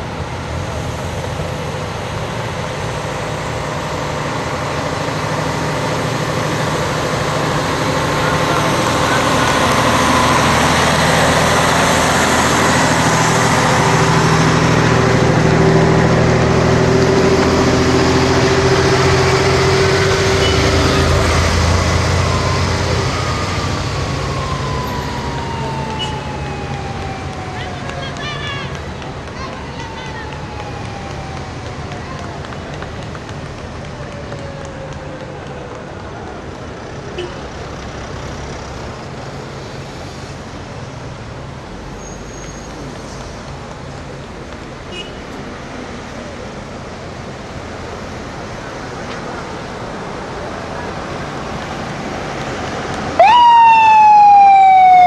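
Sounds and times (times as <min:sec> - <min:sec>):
motorcycles and cars passing: 0:00.0 - 0:55.0
truck engine passing: 0:00.0 - 0:55.0.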